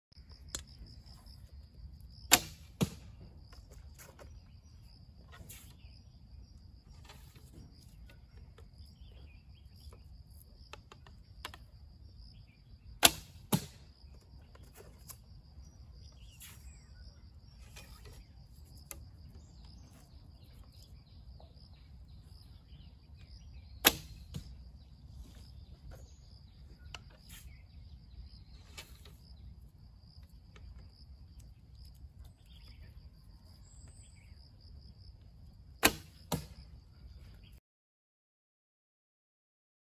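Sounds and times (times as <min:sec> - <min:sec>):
insects chirring: 0:00.1 - 0:37.5
arrow handling clicks: 0:00.5 - 0:00.7
bow string snapping: 0:23.8 - 0:24.5.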